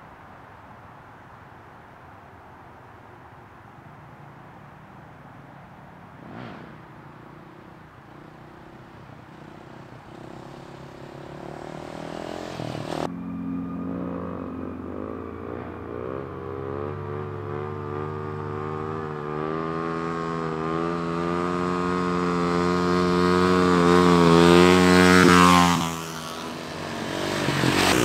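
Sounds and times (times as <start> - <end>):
dirt bike engine revving: 6.2 - 28.0.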